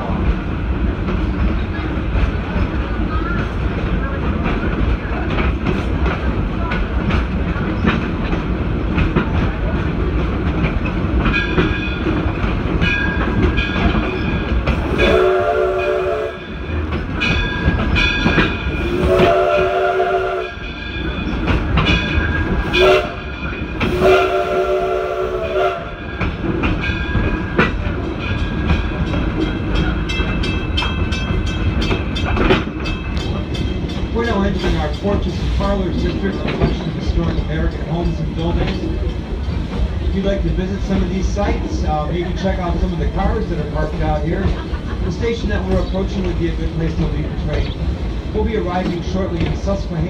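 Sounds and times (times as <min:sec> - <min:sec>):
train clattering and rumbling: 0:00.0 - 0:50.0
steam locomotive whistle blasts: 0:14.9 - 0:16.6, 0:18.8 - 0:20.6, 0:22.6 - 0:23.3, 0:23.9 - 0:26.1.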